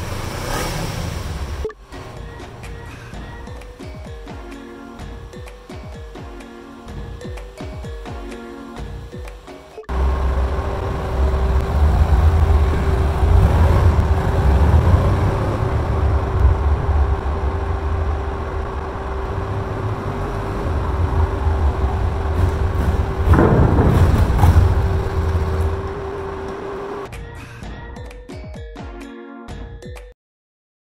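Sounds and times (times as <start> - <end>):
motorcycle engine and exhaust: 9.9 - 27.1.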